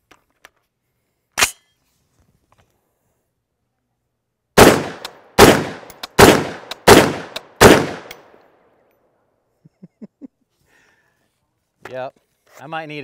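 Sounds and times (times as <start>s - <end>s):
rifle shots: 4.6s - 8.4s.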